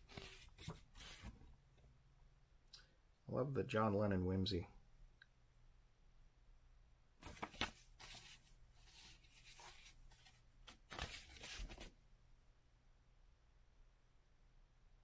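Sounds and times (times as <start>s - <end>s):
paper rustling: 0.0s - 1.4s, 7.2s - 11.9s.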